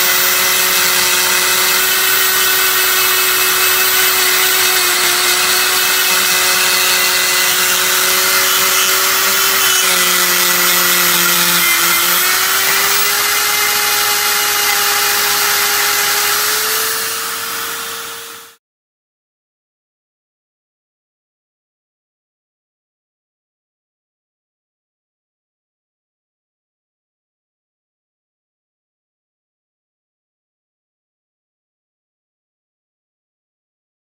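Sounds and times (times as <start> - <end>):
die grinder whining: 0.0 - 18.6.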